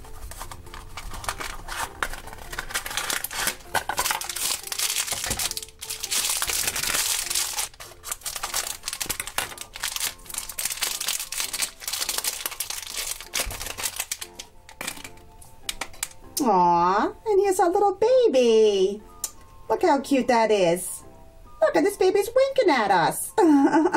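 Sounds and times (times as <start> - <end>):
plastic wrapper crinkling: 0.0 - 16.2.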